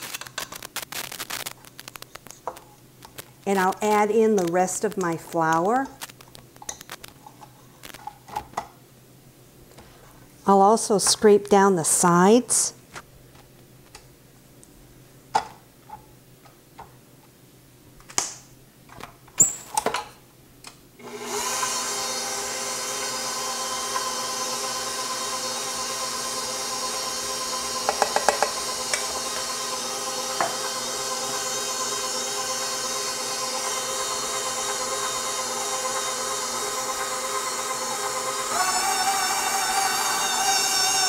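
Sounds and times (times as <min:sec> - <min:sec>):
stand mixer running: 0:21.0 - 0:41.0.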